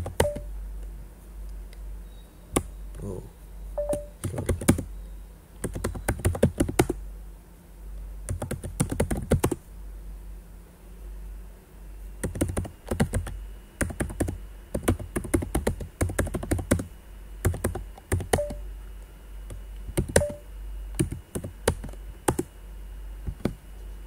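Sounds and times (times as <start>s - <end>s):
computer keyboard typing: 0.0s - 0.5s, 3.8s - 4.9s, 5.6s - 7.0s, 8.3s - 9.6s, 12.2s - 18.6s, 19.9s - 20.4s, 21.0s - 22.5s, 23.3s - 23.6s.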